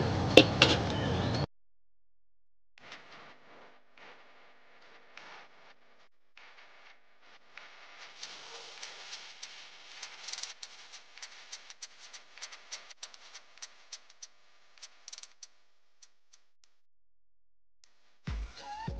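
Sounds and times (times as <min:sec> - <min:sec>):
soft hiss: 0:05.2 - 0:16.2
faint crackling clicks: 0:06.4 - 0:16.8.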